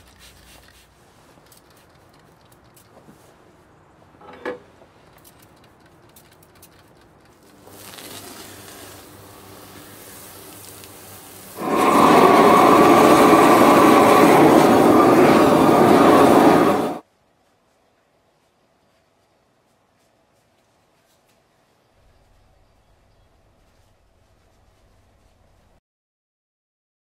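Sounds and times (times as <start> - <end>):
steady gas hiss: 7.3 - 17.0
propane torch roaring: 7.4 - 17.0.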